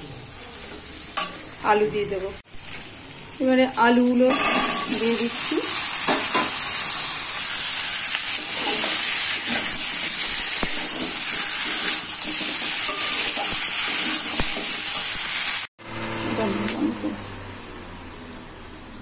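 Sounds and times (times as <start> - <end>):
potatoes sizzling in oil: 0.0 - 15.7
metal spatula scraping: 8.3 - 14.7.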